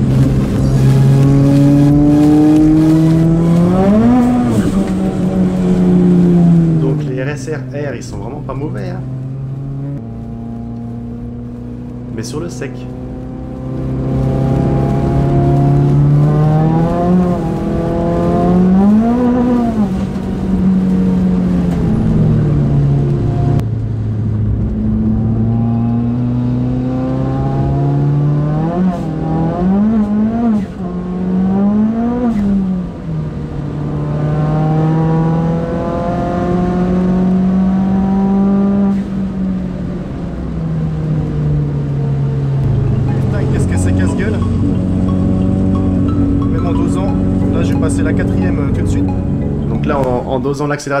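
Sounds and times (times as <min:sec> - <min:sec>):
car engine revving: 0:00.0 - 0:51.0.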